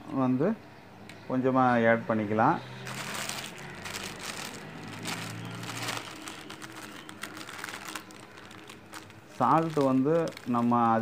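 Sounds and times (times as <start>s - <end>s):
irregular crackling and crinkling: 2.8s - 11.0s.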